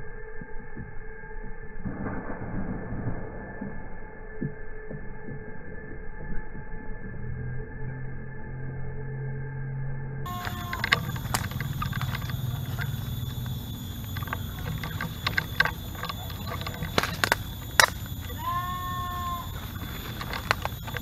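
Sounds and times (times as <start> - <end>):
leaves rustling: 10.3 - 21.0
short steady call: 10.3 - 21.0
twigs snapping underfoot: 10.3 - 21.0.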